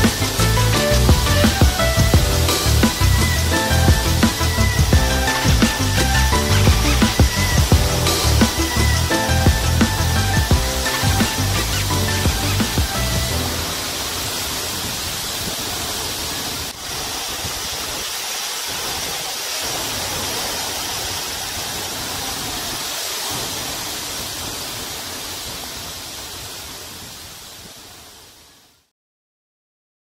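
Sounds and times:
waterfall rushing: 0.0s - 28.9s.

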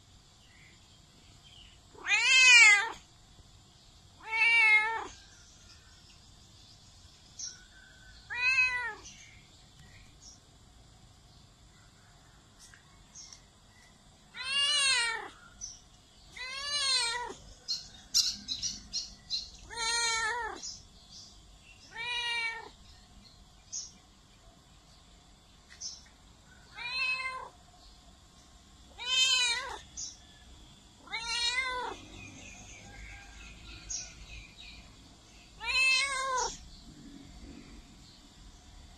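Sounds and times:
cat meowing: 2.0s - 3.0s, 4.2s - 5.2s, 8.3s - 9.1s, 14.4s - 15.4s, 16.3s - 17.4s, 19.6s - 20.6s, 21.9s - 22.7s, 26.7s - 27.5s, 28.9s - 29.8s, 31.0s - 32.0s, 35.6s - 36.6s.

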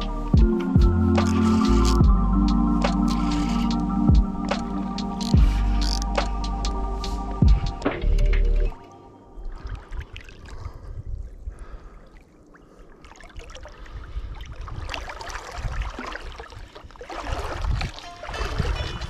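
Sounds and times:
fishing rod and reel handling: 1.1s - 2.1s, 2.8s - 7.2s
wind gusting on microphone: 9.4s - 12.1s, 13.3s - 19.0s
water lapping at bank: 9.4s - 19.0s.

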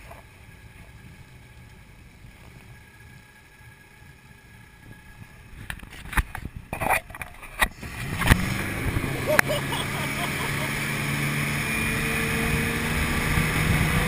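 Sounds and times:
boat engine running low: 0.0s - 14.0s
wind gusts on microphone: 10.9s - 14.0s.

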